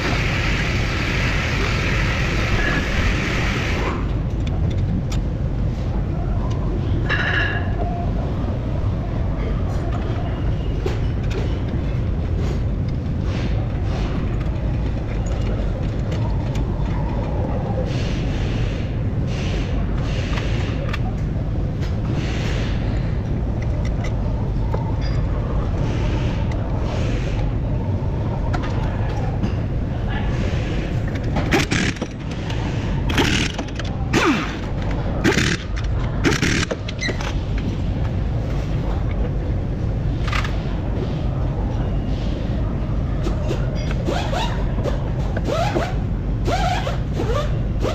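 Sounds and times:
workshop background rumble: 0.0s - 47.9s
impact wrench bursts: 31.4s - 32.4s, 33.1s - 37.1s.

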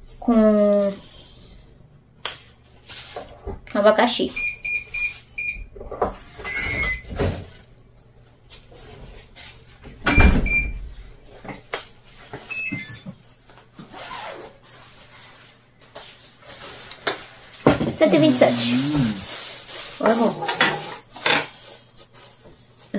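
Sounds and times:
door shutting with a thud: 10.0s - 10.8s
plastic bag rustling: 13.3s - 22.9s.

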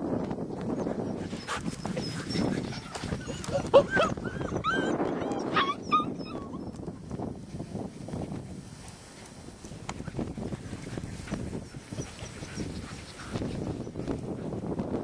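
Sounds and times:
puppies yipping and whimpering: 0.8s - 6.8s.

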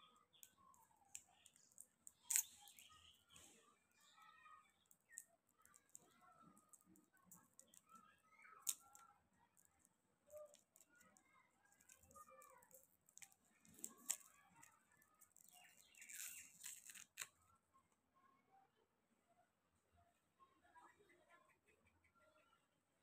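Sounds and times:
plastic wrapper crinkling: 0.3s - 4.2s, 8.6s - 17.3s.

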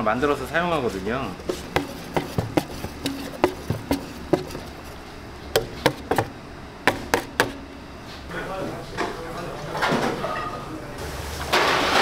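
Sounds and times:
kitchen utensils tapping: 1.4s - 5.0s, 5.6s - 6.3s.

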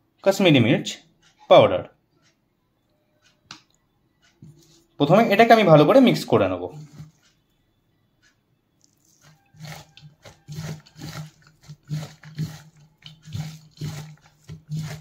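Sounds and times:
hand squeezing food in bowl: 8.8s - 15.0s.

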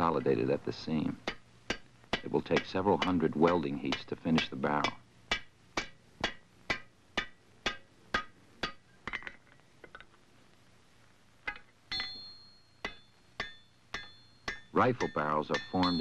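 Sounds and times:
hammer striking hot iron: 1.2s - 9.4s, 11.5s - 16.0s.

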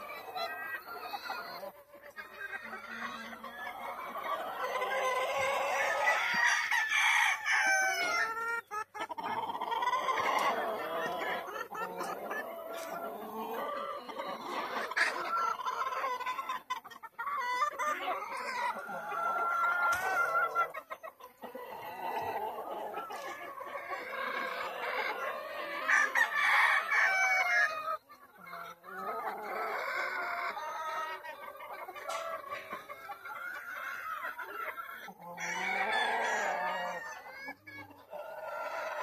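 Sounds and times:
chickens clucking and calling: 0.0s - 39.0s
rooster crowing: 6.1s - 8.2s, 25.9s - 27.6s, 35.4s - 37.2s.

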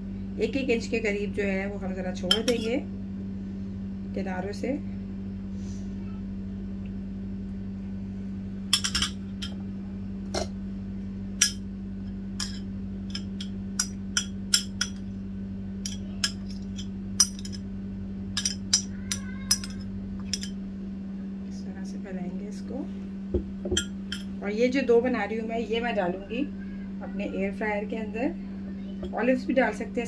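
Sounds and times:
steady low hum: 0.0s - 30.0s
metal spoon clinking on ceramic dish: 2.3s - 2.8s, 8.8s - 9.6s, 11.4s - 11.6s, 12.4s - 15.0s, 15.8s - 17.6s, 18.4s - 20.6s, 23.8s - 24.3s.

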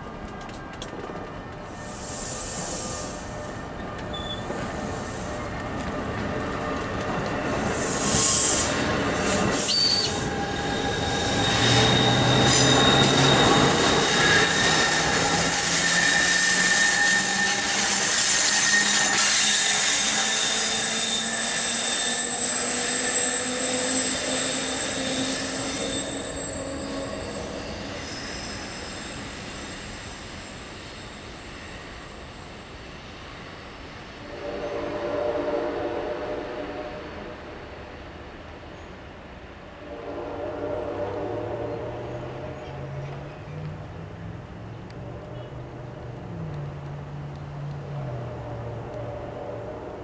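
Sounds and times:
rumble of train cars: 0.0s - 50.0s
train wheels squealing: 0.3s - 35.5s.

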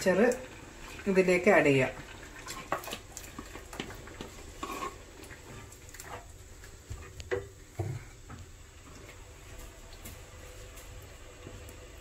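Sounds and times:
spoon scraping earthenware pot: 4.6s - 5.1s.

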